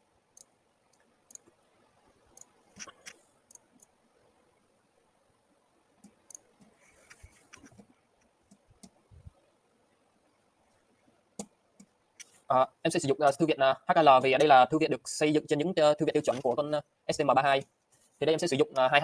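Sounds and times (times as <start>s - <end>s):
computer mouse clicks: 0.4s - 1.6s, 2.3s - 3.9s, 6.0s - 9.0s, 11.4s - 12.5s.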